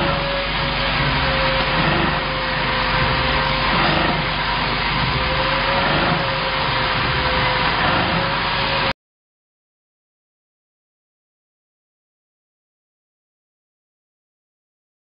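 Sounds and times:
packaging machine running: 0.0s - 8.9s
thin steady whine: 0.0s - 8.9s.

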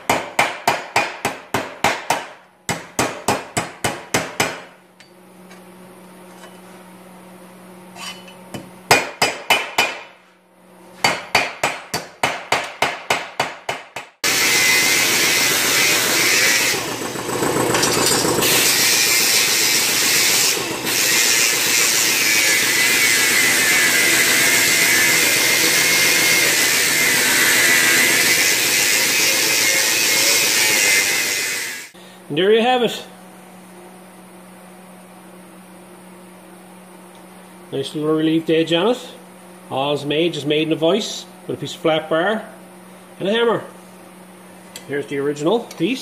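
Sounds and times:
angle grinder whining on steel: 14.2s - 32.0s.

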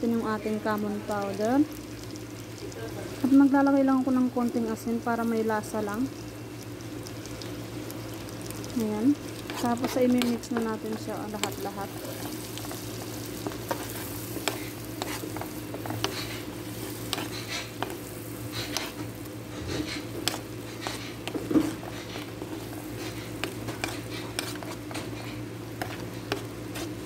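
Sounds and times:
onions sizzling in a pan: 0.0s - 27.0s
utensil scraping and tapping pan: 19.7s - 26.9s.

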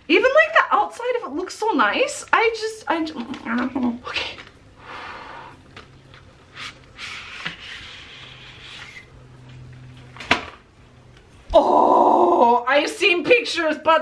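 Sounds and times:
cardboard sleeve scraping: 6.5s - 9.2s.

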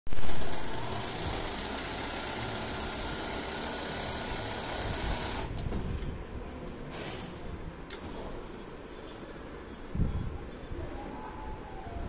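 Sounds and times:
sewing machine stitching fabric: 0.1s - 5.5s.

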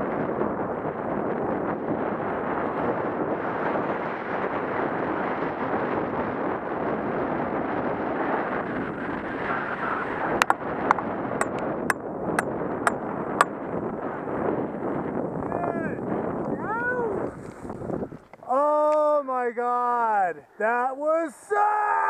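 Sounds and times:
wind on microphone: 0.0s - 18.5s
sharp clicks: 10.4s - 11.6s
skis sliding through snow: 17.2s - 18.0s.

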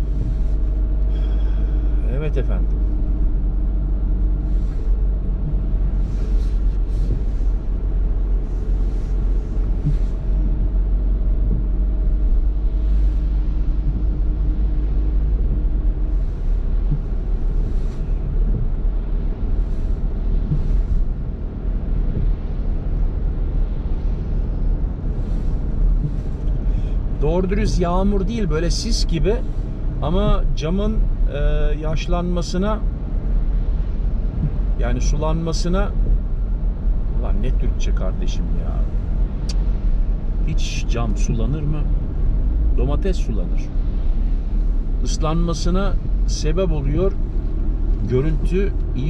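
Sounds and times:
car road noise rumble: 0.0s - 49.0s
engine hum: 0.0s - 49.0s
swishes of water spray: 4.2s - 27.2s.

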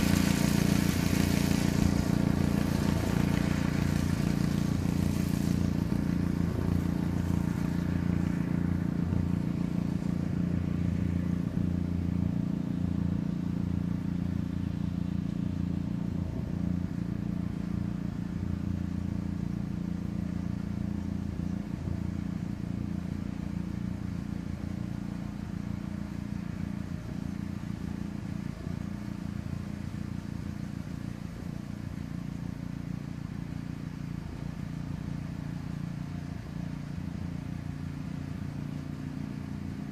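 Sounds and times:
pickup truck engine drone: 0.0s - 39.9s.

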